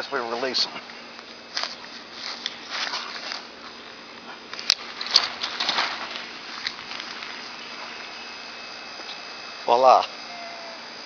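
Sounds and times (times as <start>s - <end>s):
tent fabric rustling: 1.6s - 3.7s, 4.8s - 8.0s.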